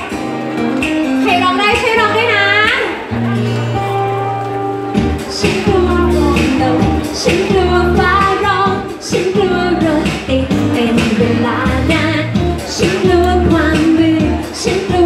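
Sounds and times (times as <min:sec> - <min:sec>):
pop backing music with bass beat: 0:00.0 - 0:15.0
woman singing into microphone: 0:05.2 - 0:15.0.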